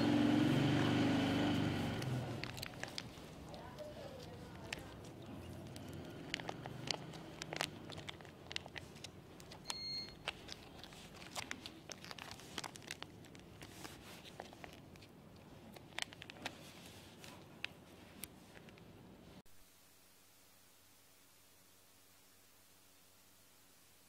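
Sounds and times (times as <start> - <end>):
plastic bag crinkling: 2.3 - 18.2
short high beep: 9.7 - 10.2.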